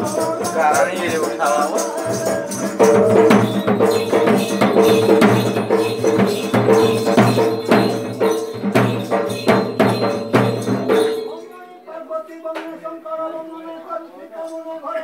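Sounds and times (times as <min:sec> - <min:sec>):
folk dance drum music: 0:00.0 - 0:11.4.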